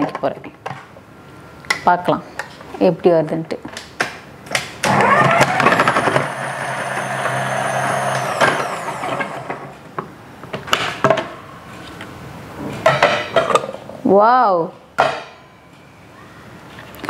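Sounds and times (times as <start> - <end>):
food processor humming and whining: 4.8 - 9.9.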